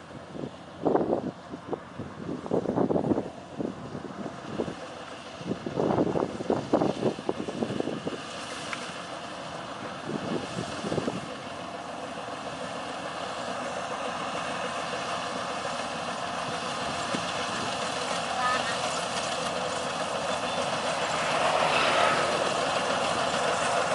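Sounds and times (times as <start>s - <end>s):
combine harvester running: 0.0s - 23.9s
wind buffeting microphone: 9.8s - 11.4s.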